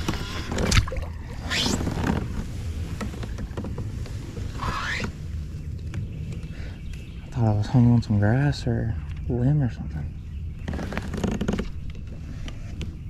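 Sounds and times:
water noise: 0:00.0 - 0:05.8.

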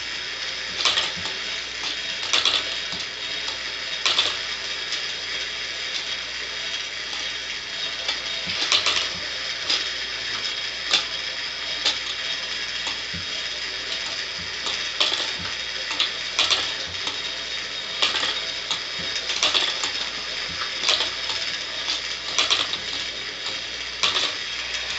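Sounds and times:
clockwork fan whirring: 0:00.0 - 0:24.9
mechanism clicks and knocks: 0:00.7 - 0:05.0, 0:07.9 - 0:11.2, 0:12.8 - 0:24.9.

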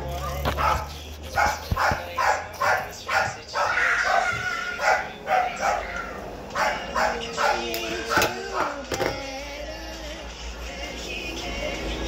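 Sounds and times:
dog barking: 0:00.2 - 0:08.8.

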